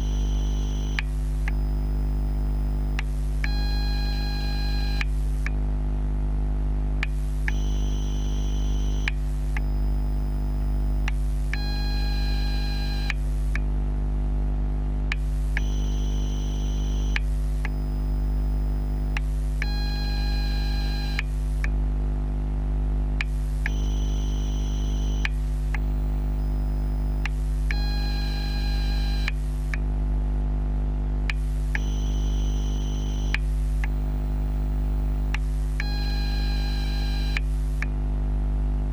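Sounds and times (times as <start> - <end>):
high-pitched whine: 0.0 - 3.1, 23.6 - 29.4
battery charger electrical hum: 0.0 - 38.9
short clicks: 21.1 - 21.8, 25.2 - 25.9, 33.2 - 34.0.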